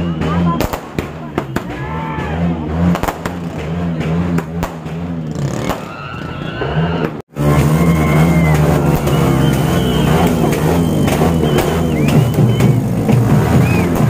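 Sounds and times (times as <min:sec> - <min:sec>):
crowd cheering: 0:00.0 - 0:14.0
firecracker pops: 0:00.2 - 0:01.8, 0:02.9 - 0:06.0, 0:08.5 - 0:14.0
low drone: 0:07.4 - 0:14.0.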